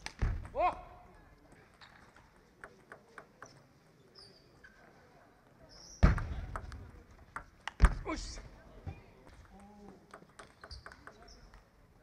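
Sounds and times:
table tennis ball ticking: 10.1 - 11.4.

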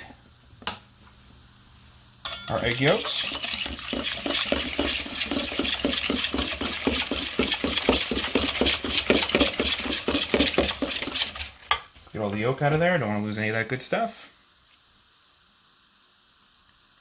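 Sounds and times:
whisk scraping metal bowl: 2.5 - 11.8.

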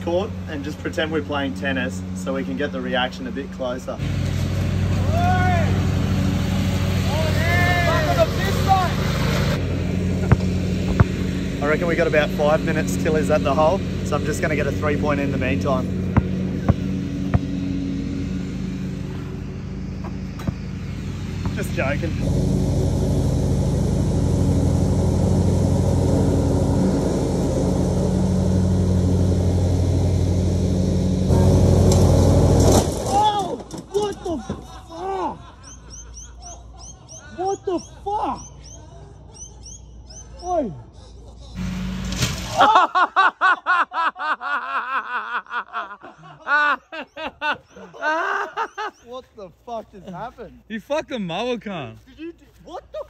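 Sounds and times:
lawn mower engine running: 0.0 - 34.9, 41.6 - 42.6
person laughing hard: 33.9 - 41.6, 42.5 - 49.0, 52.6 - 53.0.

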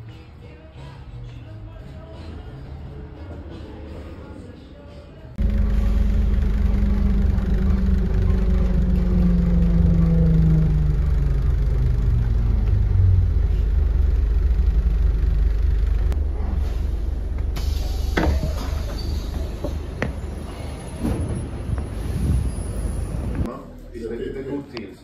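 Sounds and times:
bus engine and road rumble: 1.7 - 24.4
drive whine: 5.4 - 19.1.

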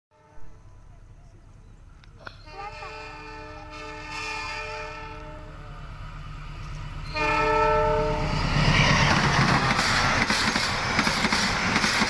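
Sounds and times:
train horn: 0.1 - 0.7, 2.3 - 5.8, 7.0 - 8.5
train passing rumble: 0.2 - 12.0.

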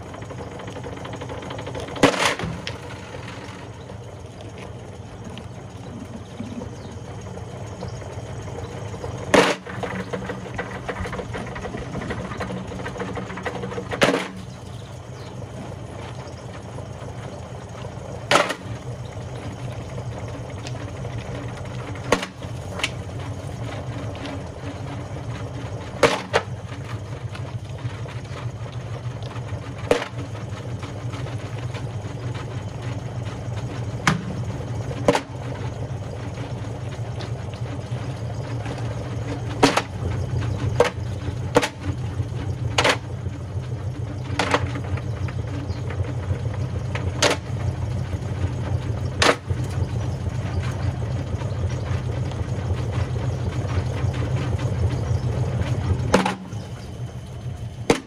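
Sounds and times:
washing machine motor hum: 0.0 - 58.0.

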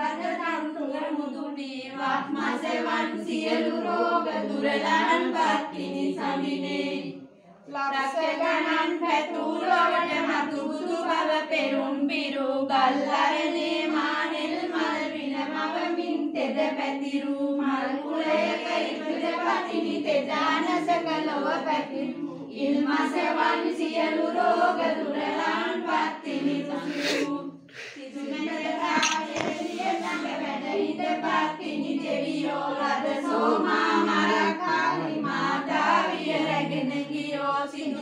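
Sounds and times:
women singing in unison: 0.0 - 38.0.

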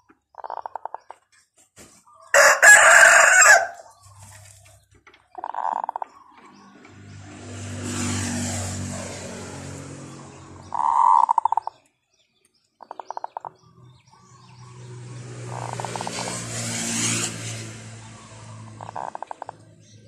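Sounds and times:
vehicles passing by: 2.4 - 20.0
rattling bird call: 10.7 - 11.7, 15.4 - 17.4, 18.1 - 19.6
rattling chicken call: 18.8 - 19.5.

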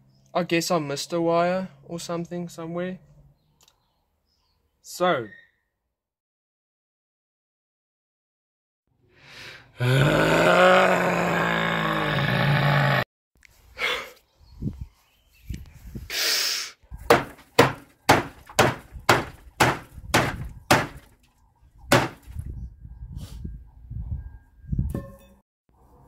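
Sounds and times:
loud held sound: 17.1 - 21.1, 21.9 - 22.4
tool smashing scrap wood: 17.1 - 21.2, 21.9 - 22.4.

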